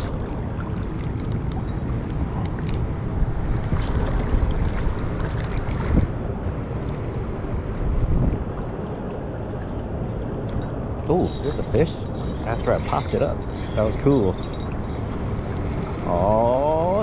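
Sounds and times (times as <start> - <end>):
faint clicks: 10.4 - 15.4.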